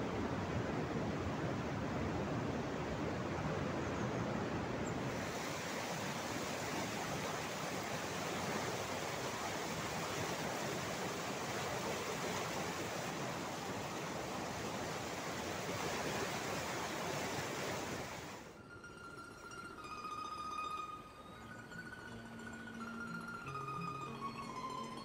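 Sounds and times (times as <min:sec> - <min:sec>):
river rushing over rapids: 0:00.0 - 0:18.6.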